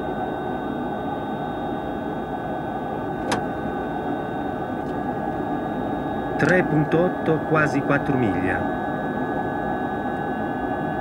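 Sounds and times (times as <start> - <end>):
air rush and engine noise: 0.0 - 11.0
sharp click: 3.2 - 3.4.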